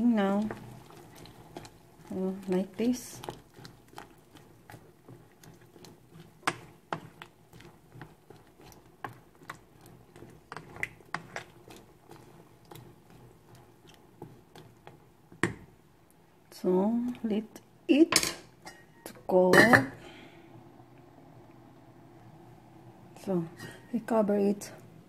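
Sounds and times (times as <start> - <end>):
spoon stirring vegetables in water: 0.0 - 20.0.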